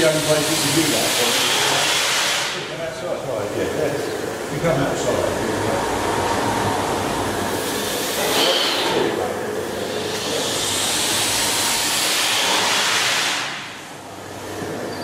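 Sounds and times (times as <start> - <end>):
steam hiss: 0.0 - 2.7.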